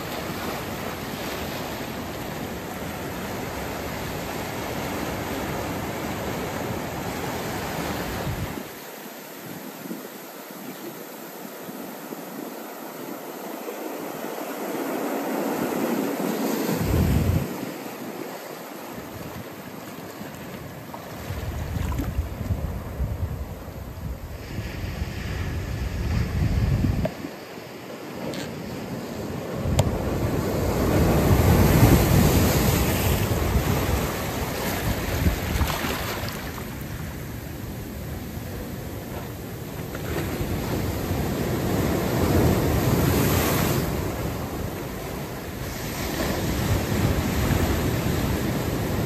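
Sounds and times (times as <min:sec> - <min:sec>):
ocean surf over rocks: 0:00.0 - 0:49.0
wind rumble on microphone: 0:04.1 - 0:08.7, 0:16.6 - 0:17.9, 0:21.1 - 0:27.4, 0:28.6 - 0:49.0.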